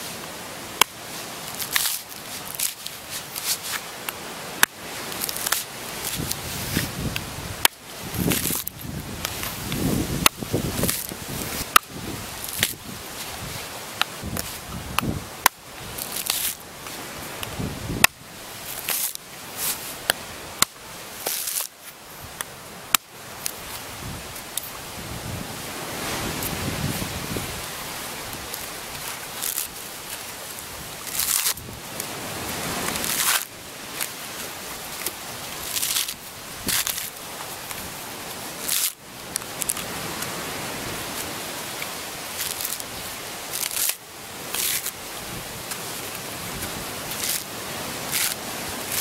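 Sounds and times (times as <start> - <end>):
husk fibre ripping: 1.4 - 3.8, 5.0 - 6.9, 8.2 - 13.3, 15.9 - 16.6, 21.2 - 21.8, 28.4 - 30.3, 30.9 - 37.9, 38.6 - 40.0, 42.2 - 45.0, 45.7 - 49.0
machete chopping coconut husk: 20.0 - 21.8, 46.6 - 49.0.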